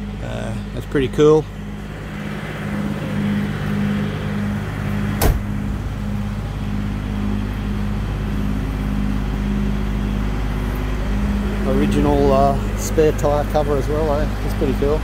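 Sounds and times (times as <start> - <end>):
low throbbing hum: 0.0 - 15.0
car door shutting: 5.2 - 5.8.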